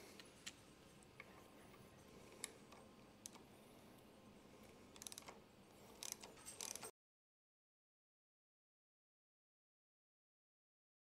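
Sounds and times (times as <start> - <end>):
allen key clicking on bolt: 5.0 - 6.9.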